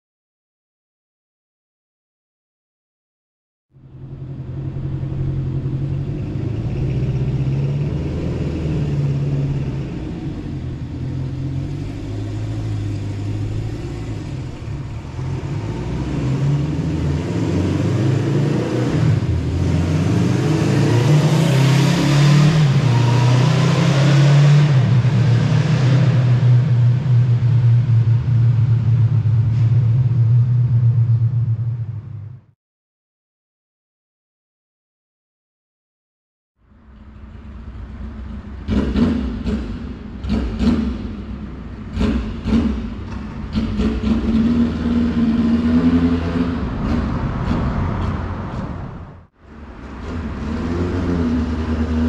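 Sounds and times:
motorcycle engine revving: 4.0s - 29.4s, 37.5s - 48.4s.

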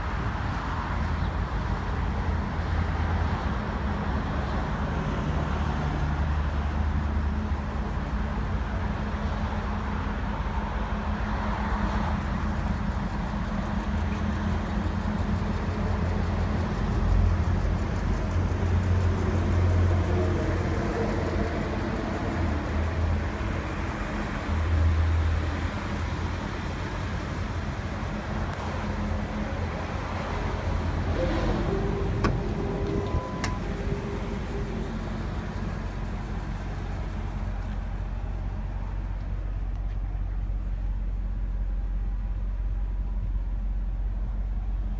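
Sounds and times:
truck engine idling: 5.9s - 44.9s
short steady tone: 31.2s - 33.8s.

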